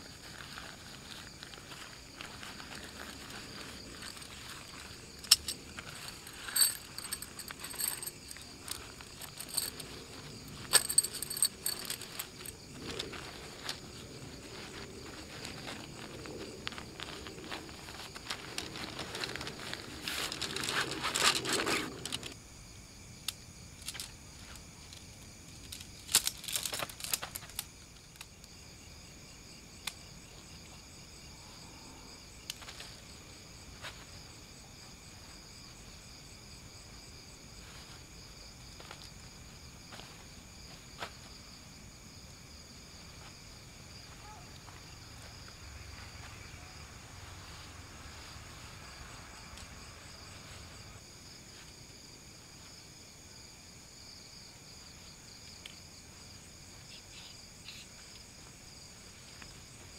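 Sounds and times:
nylon tent fabric rustling: 0:00.0 - 0:22.3
crickets and insects chirping: 0:00.0 - 0:59.9.

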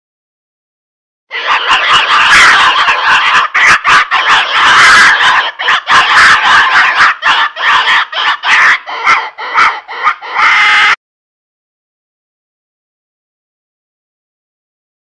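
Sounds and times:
mouth call imitating pig squeals: 0:01.3 - 0:11.0.

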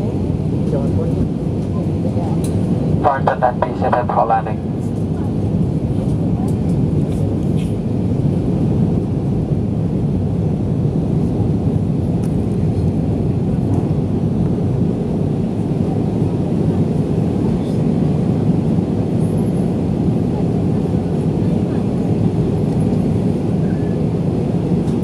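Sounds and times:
airplane cabin engine rumble: 0:00.0 - 0:25.0.

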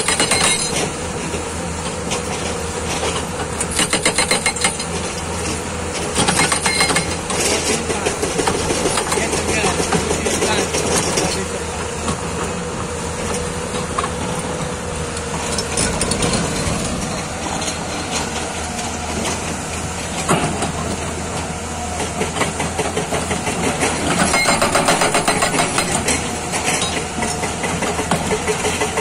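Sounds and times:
hydraulic breaker hammering rock: 0:00.0 - 0:01.0, 0:03.5 - 0:11.4, 0:22.0 - 0:29.0
diesel engine running: 0:00.0 - 0:29.0.

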